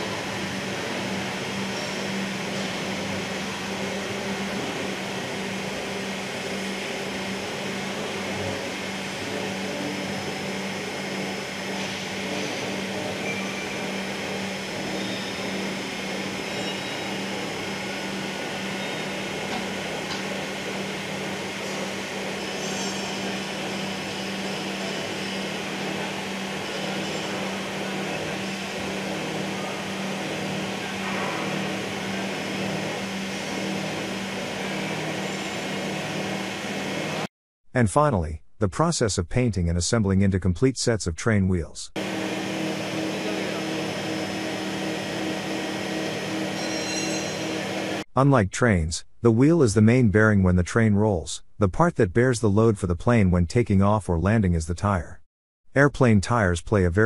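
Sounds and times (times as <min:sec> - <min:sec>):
factory machinery humming: 0:00.0 - 0:37.3, 0:42.0 - 0:48.0.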